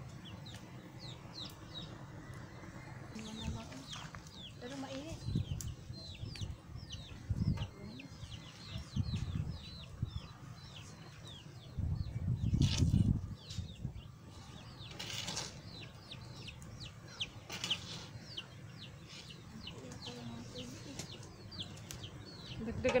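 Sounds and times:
chicks peeping: 3.1 - 23.0.

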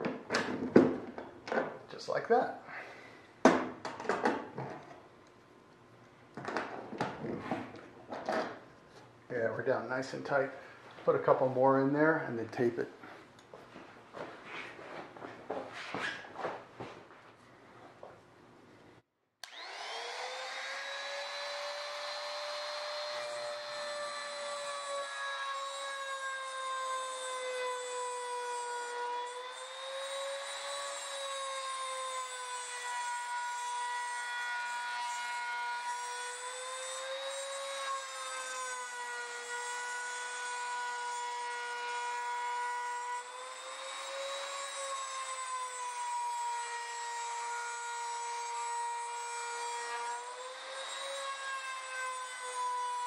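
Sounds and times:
router cutting aluminum whine: 19.4 - 53.0.

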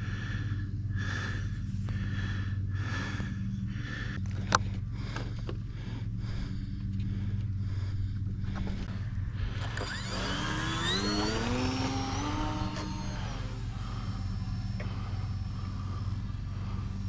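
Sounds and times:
steady low hum: 0.0 - 17.0
electric motor whine rising: 6.9 - 17.0.

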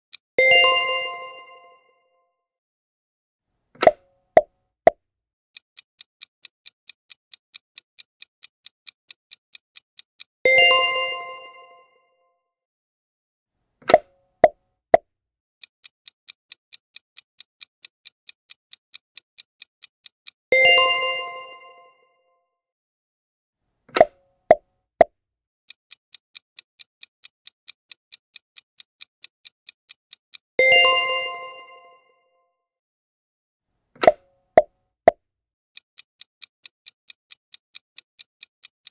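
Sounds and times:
clock-like timer ticks: 0.1 - 1.0, 3.8 - 4.5, 5.5 - 11.7, 13.8 - 15.0, 15.6 - 21.7, 23.9 - 24.6, 25.7 - 31.7, 34.0 - 35.2, 35.8 - 38.9.

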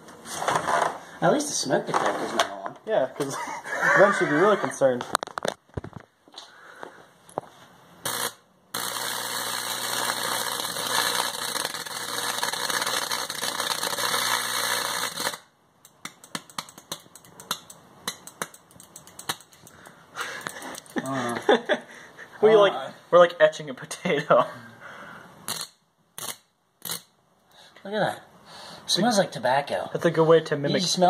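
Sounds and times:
electrical hum: 0.0 - 23.5
crackles and clicks: 5.0 - 6.1, 8.0 - 21.0
electric arc crackling buzz: 8.0 - 15.6, 25.5 - 27.2.

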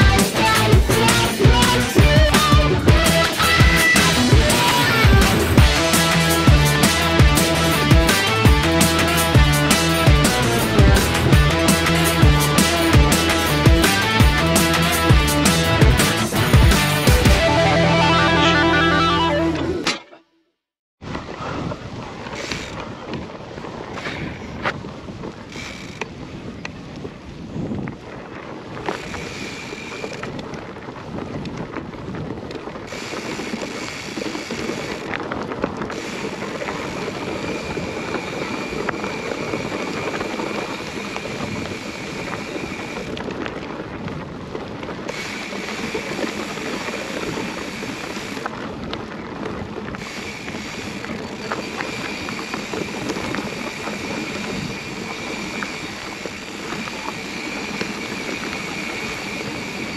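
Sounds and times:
wind on microphone: 0.0 - 18.3, 21.0 - 59.9
tyres on dirt and grass: 0.0 - 20.3, 21.0 - 59.9.

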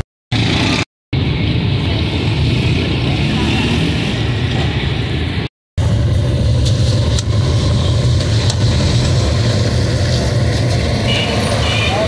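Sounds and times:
steady low rumble: 5.0 - 10.9.

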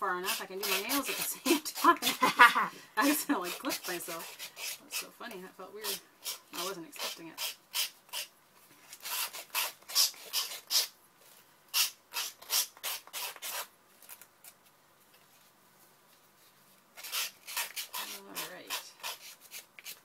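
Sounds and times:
nail file rasping on card: 0.2 - 2.2, 3.0 - 5.1, 5.8 - 8.3, 8.9 - 11.0, 11.7 - 13.7, 17.0 - 20.0.

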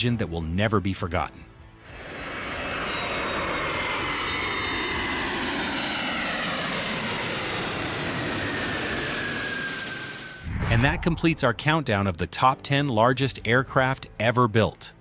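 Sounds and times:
jet aircraft passing overhead: 1.7 - 11.9.

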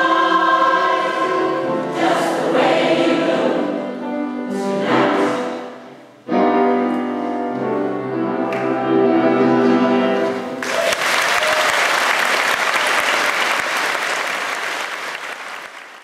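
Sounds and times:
mixed choir holding a chord: 0.0 - 6.4
audience applause: 10.6 - 16.0.

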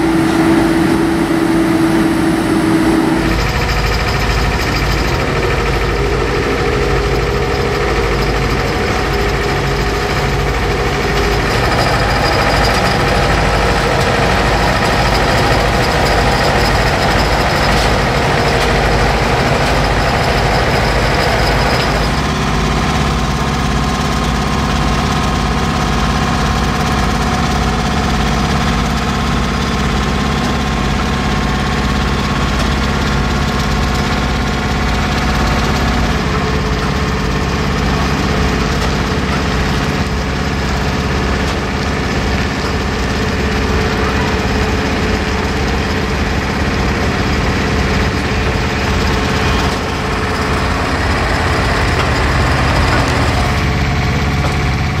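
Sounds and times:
steady tone: 0.0 - 22.2
truck diesel engines droning: 0.0 - 55.0.

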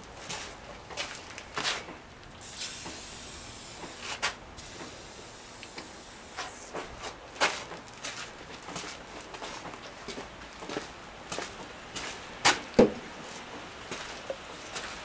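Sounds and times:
aerosol can spraying: 2.4 - 6.8.

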